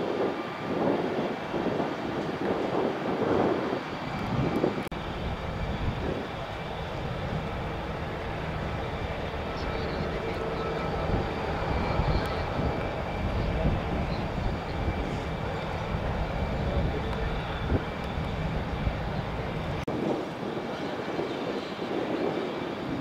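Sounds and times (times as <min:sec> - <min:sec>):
jet engines rumbling: 0:00.0 - 0:23.0
faint high whine: 0:03.8 - 0:19.8.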